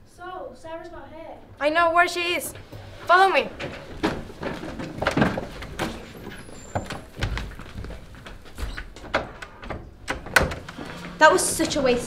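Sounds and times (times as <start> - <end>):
footsteps: 2.5 - 9.1
irregular thuds: 3.6 - 12.0.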